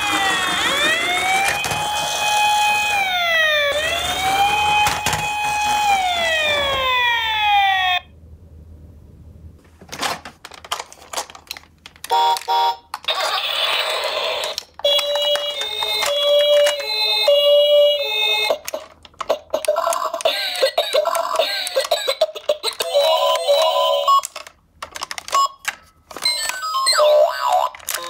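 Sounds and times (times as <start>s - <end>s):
toy electronic siren wailing: 0.0s - 8.1s, 12.1s - 24.5s, 25.2s - 28.0s
clicks: 23.5s - 28.0s.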